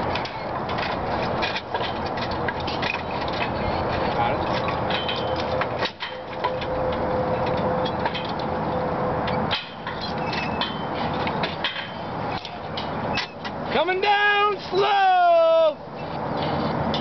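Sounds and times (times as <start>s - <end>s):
rushing background noise: 0.0s - 17.0s
metal hardware clinking: 0.1s - 8.5s.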